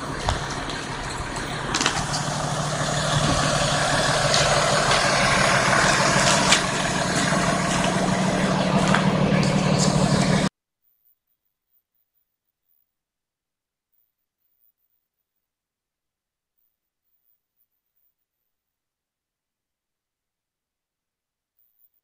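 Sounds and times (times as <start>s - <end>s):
diesel engine idling: 0.0s - 10.5s.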